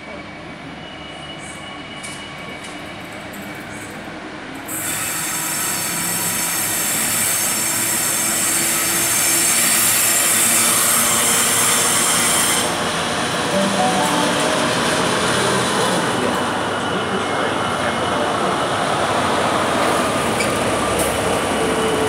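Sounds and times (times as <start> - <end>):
train wheels squealing on track: 0.0 - 11.9.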